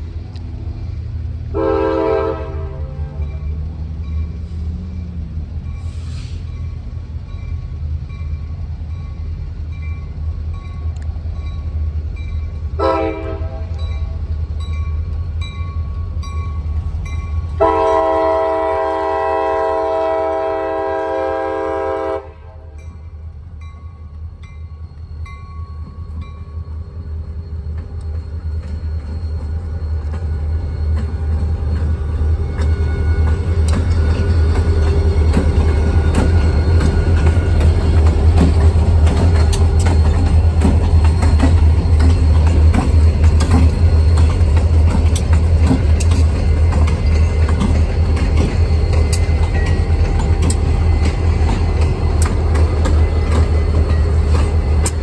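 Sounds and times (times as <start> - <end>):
diesel locomotive engines rumbling: 0.0 - 55.0
train air horn blasts: 1.5 - 3.2, 12.8 - 13.8, 17.6 - 22.8
crossing bell ringing: 2.1 - 18.6, 22.7 - 55.0.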